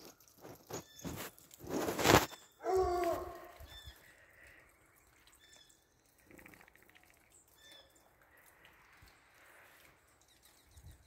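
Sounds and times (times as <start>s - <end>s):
small birds chirping: 0.0s - 11.0s
distant dog bark: 2.6s - 3.6s.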